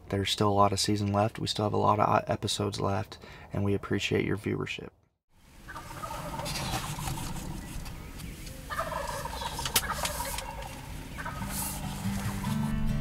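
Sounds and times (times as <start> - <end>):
turkeys gobbling: 5.5 - 12.7.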